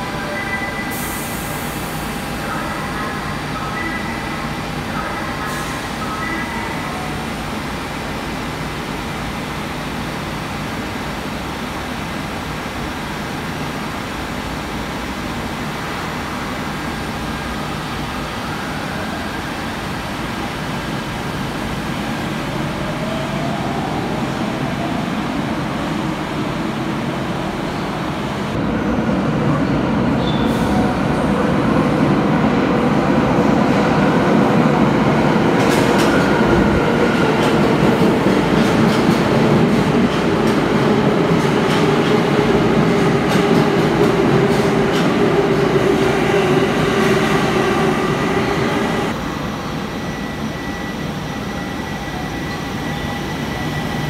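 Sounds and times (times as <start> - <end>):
subway motors whining: 0.0 - 54.0
train rumble: 23.8 - 50.3.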